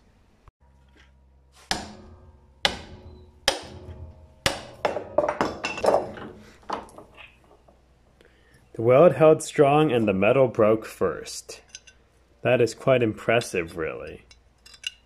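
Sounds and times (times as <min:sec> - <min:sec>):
cast iron fracturing: 0:00.6 - 0:07.8
metallic knocks and clatter: 0:00.7 - 0:07.9
hammer striking cast iron: 0:00.8 - 0:07.2.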